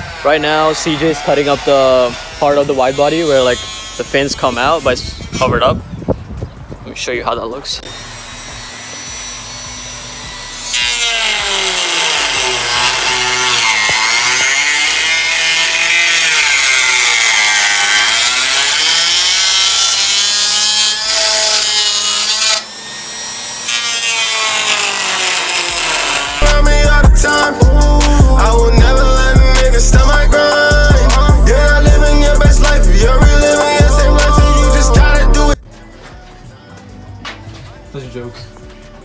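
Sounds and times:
power tool cutting metal panel: 0.0 - 5.5, 7.8 - 27.6.

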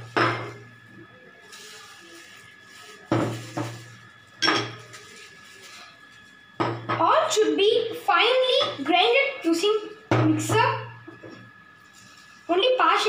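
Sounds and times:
dishes knocking: 6.6 - 7.0.

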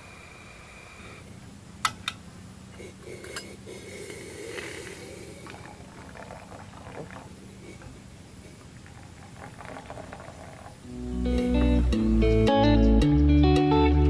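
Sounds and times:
hot water pouring into metal cup: 4.5 - 10.9.

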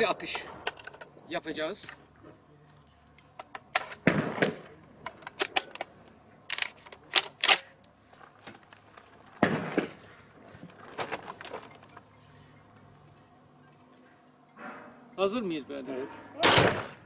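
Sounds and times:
shotgun handling clicks and clacks: 0.6 - 1.2, 3.1 - 9.9.

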